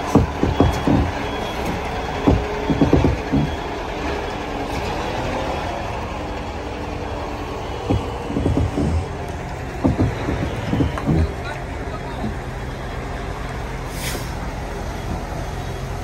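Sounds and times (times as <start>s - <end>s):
heavy clunks: 0.0s - 3.8s, 7.7s - 11.5s
reversing alarm beeping: 0.0s - 13.6s
diesel engine running: 0.0s - 16.0s.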